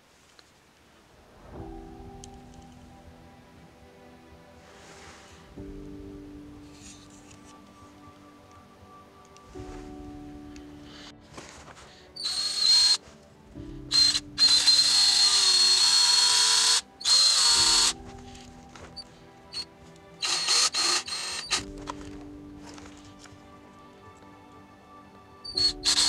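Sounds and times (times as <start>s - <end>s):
cordless drill motor whining: 12.2s - 13.0s, 13.9s - 18.0s, 19.6s - 21.7s, 25.5s - 26.0s.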